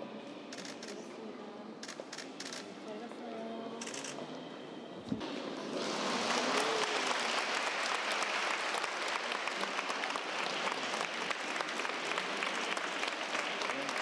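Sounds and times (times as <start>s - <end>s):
children clapping: 6.0s - 14.0s.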